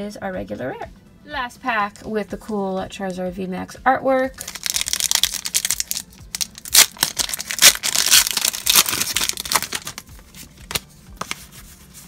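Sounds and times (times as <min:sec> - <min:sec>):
wrapper crinkling and tearing: 0:04.4 - 0:10.8.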